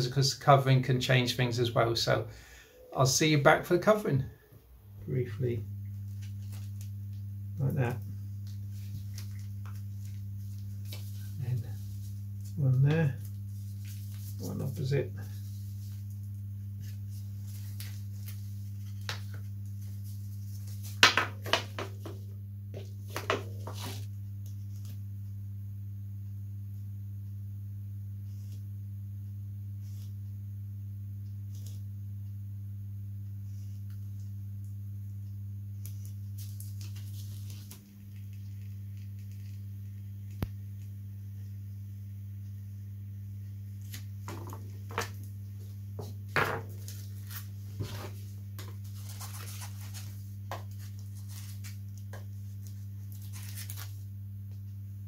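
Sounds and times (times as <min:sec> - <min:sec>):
low electrical hum: 0:00.0 - 0:55.0
plastic film crinkling: 0:35.9 - 0:39.6, 0:48.6 - 0:54.2.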